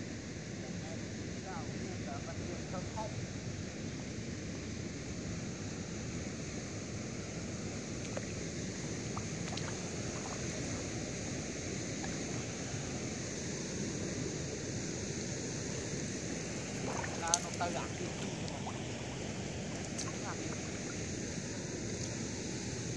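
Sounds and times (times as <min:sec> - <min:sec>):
high hiss: 0:00.0 - 0:22.9.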